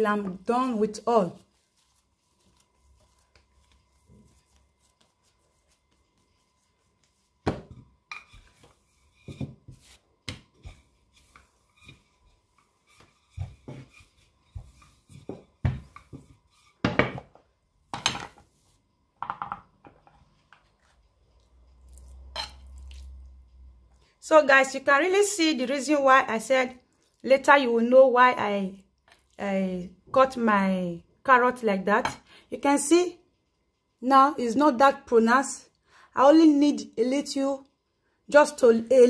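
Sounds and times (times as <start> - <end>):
soft knocks of pastry shaping: 1.3 - 21.4.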